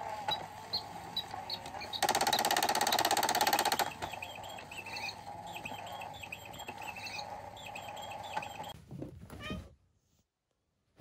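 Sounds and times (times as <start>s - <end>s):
toy motor buzzing rattle: 0.0s - 8.8s
electronic bird chirps: 0.7s - 8.8s.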